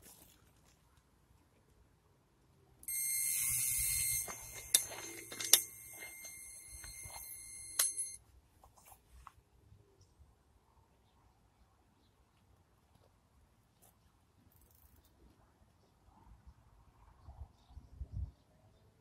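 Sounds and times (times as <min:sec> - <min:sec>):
bite alarm high tone: 0:02.9 - 0:08.2.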